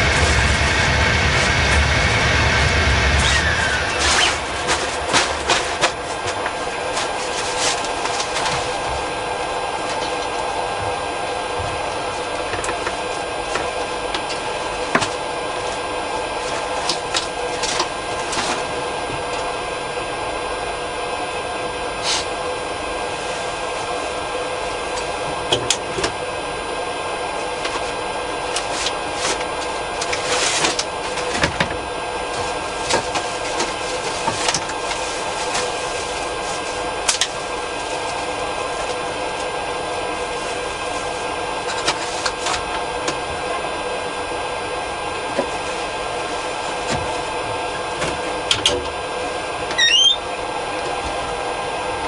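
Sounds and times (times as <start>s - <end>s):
cooling fans whirring: 0.0s - 52.0s.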